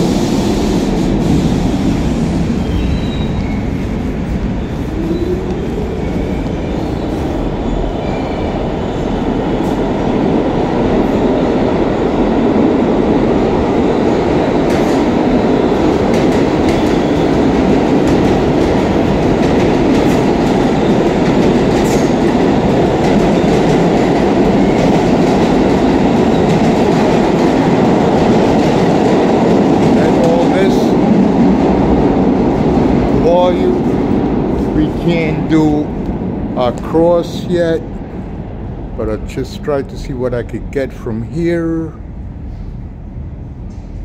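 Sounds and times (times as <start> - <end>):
subway train rumbling: 0.0 - 44.0.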